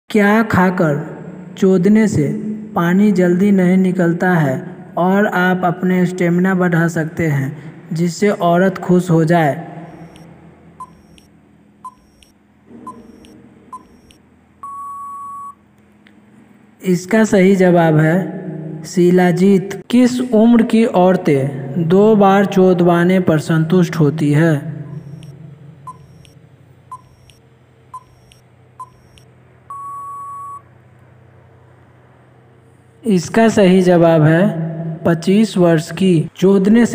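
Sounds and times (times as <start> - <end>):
faint low hum: 0.1 - 36.9
long steady beep: 9.8 - 15.6, 24.8 - 27.4, 28.0 - 30.7
short timer beeps: 9.8 - 15.6, 24.8 - 30.6.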